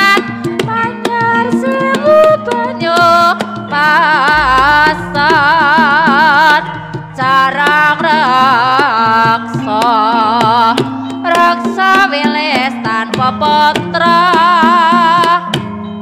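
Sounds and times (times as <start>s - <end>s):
hand drum strokes: 0.5s - 10.6s
wavering lead melody: 3.8s - 8.7s
low gong tones: 4.2s - 8.7s.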